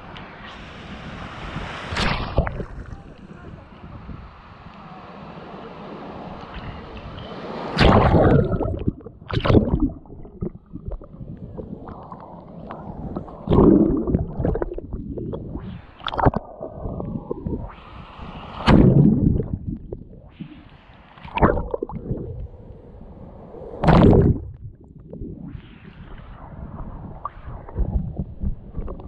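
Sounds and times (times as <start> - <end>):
waves splashing and gurgling: 0.0 - 24.7
muffled water sloshing: 7.7 - 17.7.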